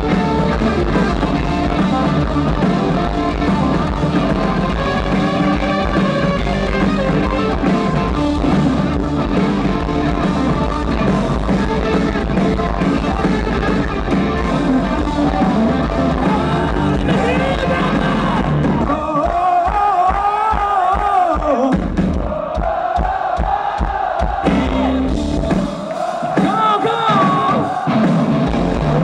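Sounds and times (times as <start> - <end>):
live rock band playing: 0.0 - 19.6, 24.3 - 29.0
person singing: 7.4 - 21.8
crowd chanting: 22.2 - 28.5.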